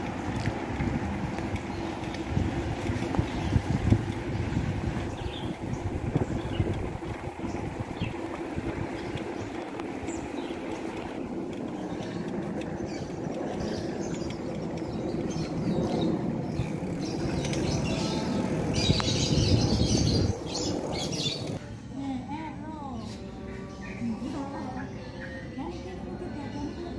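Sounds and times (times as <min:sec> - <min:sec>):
bicycle rolling over bricks: 0:00.0 - 0:21.6
wind noise on microphone: 0:00.0 - 0:21.6
birds chirping: 0:00.0 - 0:21.8, 0:22.7 - 0:26.9.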